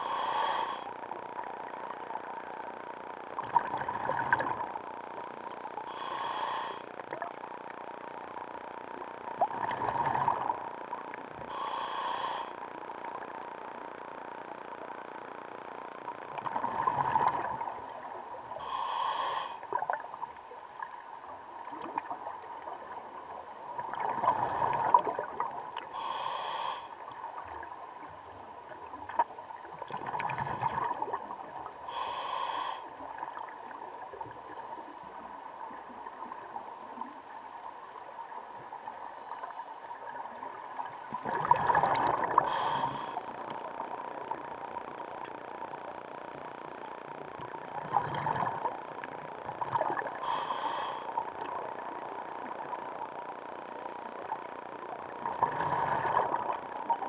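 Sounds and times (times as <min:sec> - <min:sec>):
hissing inhalation through regulator: 0:00.0 - 0:02.7, 0:05.7 - 0:07.4, 0:11.3 - 0:13.4, 0:16.4 - 0:19.8, 0:26.0 - 0:27.0, 0:31.9 - 0:32.9, 0:41.2 - 0:46.4, 0:47.4 - 0:53.3, 0:54.1 - 0:57.0
faint steady whine: 0:00.0 - 0:57.0
bubbling exhalation underwater: 0:41.2 - 0:42.8.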